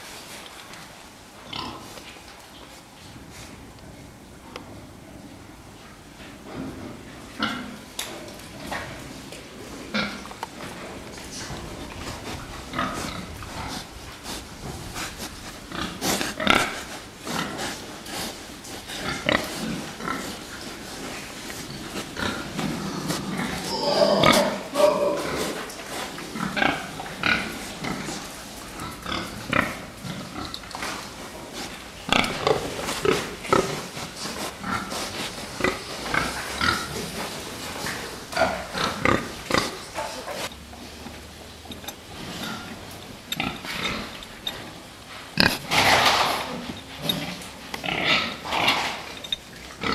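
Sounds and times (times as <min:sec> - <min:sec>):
pigs grunting: 0:06.9 - 0:40.5, 0:41.7 - 0:49.9.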